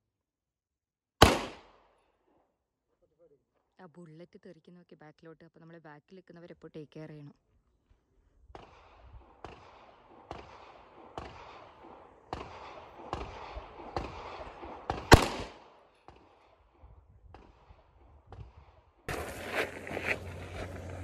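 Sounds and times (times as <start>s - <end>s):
pistol shots: 1.2s - 2.0s, 8.5s - 16.7s.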